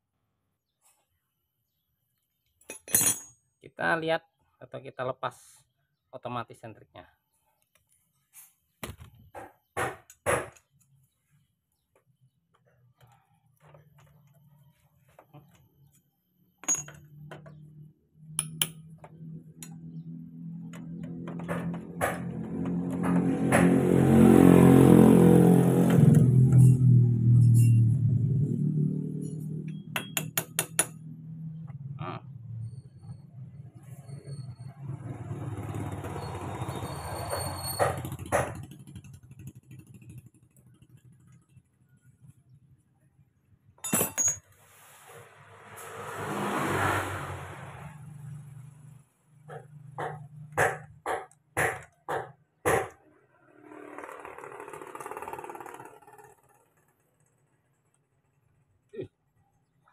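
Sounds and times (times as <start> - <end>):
socket wrench metal clinks: 2.7 - 3.4, 16.6 - 17.1, 43.8 - 44.4
motorcycle engine running: 38.0 - 42.4.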